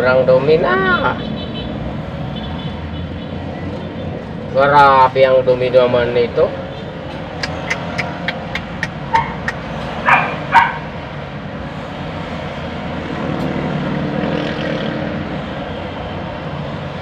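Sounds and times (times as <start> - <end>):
dog barking: 9.1 - 10.9.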